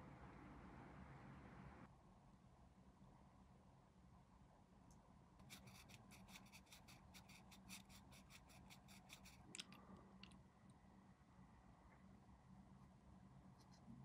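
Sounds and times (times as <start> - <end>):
tool scratching plastic part: 5.4 - 9.6.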